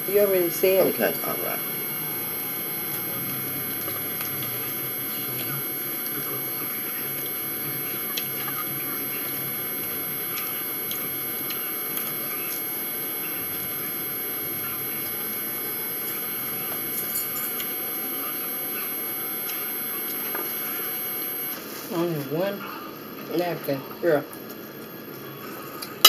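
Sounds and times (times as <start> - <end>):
room hum and hiss: 0.0 - 26.0.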